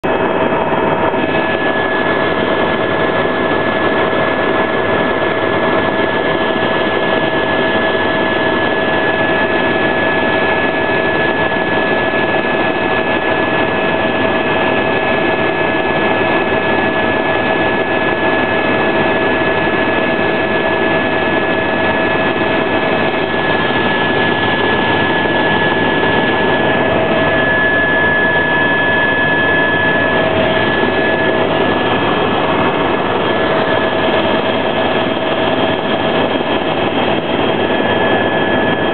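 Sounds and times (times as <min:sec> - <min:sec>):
helicopter engine and rotor rush: 0:00.0 - 0:38.9
high-pitched whine: 0:21.8 - 0:38.9.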